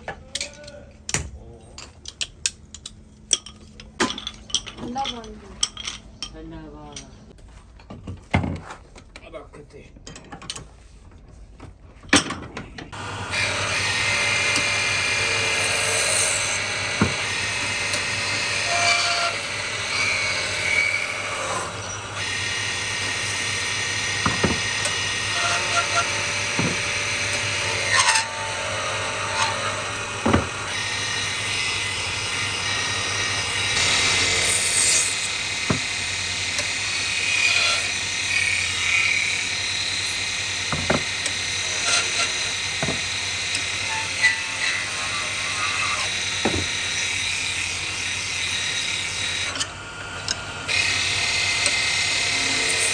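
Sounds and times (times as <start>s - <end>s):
woodworking machine humming: 12.9s - 52.9s.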